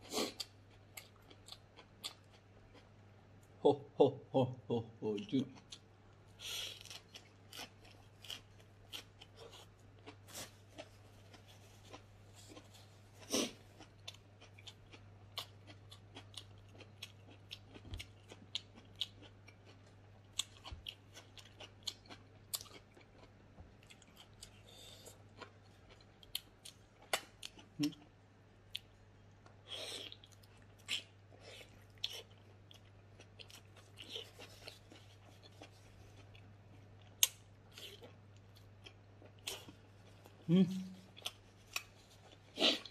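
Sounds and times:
person chewing with lip smacks: 28.7s - 42.9s.

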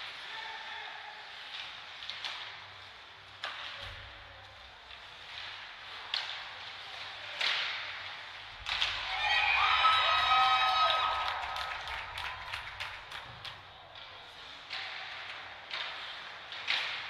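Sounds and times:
faint arena background: 0.0s - 17.0s
hockey stick hitting puck: 6.0s - 9.3s, 14.4s - 17.0s
crowd cheering and shouting: 9.1s - 12.6s.

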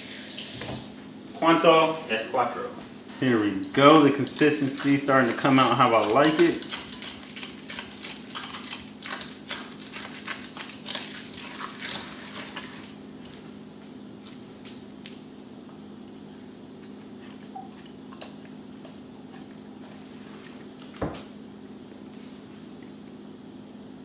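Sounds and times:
hands mashing avocado: 3.7s - 13.5s.

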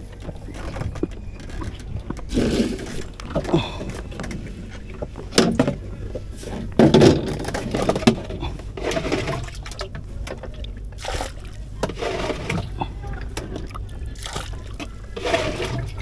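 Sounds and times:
water splashing from container: 10.9s - 12.9s, 13.5s - 16.0s.

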